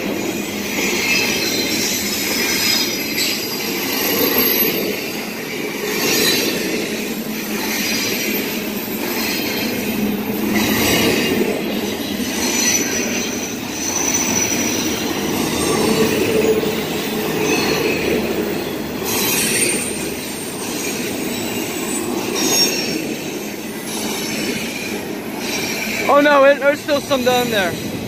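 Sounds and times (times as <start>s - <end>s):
train wheels rumbling on rails: 0.0s - 28.0s
high-pitched wheel squeal: 12.1s - 26.2s.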